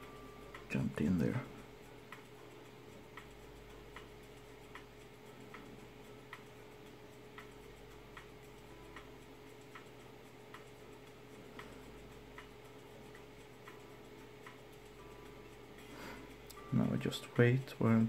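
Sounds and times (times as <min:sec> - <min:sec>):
faint regular ticking: 0:00.0 - 0:18.0
steady low hum: 0:00.0 - 0:18.0.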